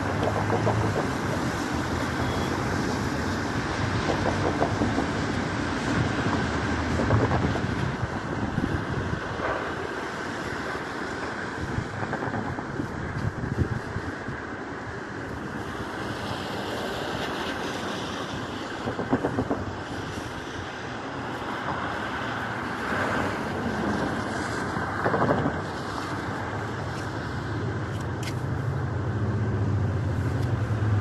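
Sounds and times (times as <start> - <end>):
street traffic passing: 0.0 - 31.0
wind on microphone: 0.0 - 31.0
low engine hum: 21.3 - 31.0.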